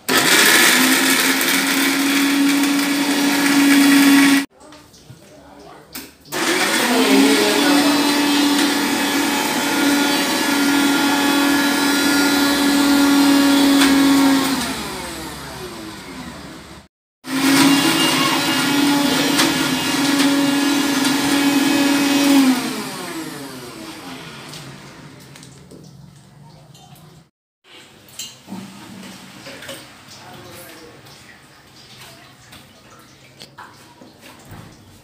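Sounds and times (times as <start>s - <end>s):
mixer grinder motor whining: 0.0s - 4.5s, 6.3s - 25.4s.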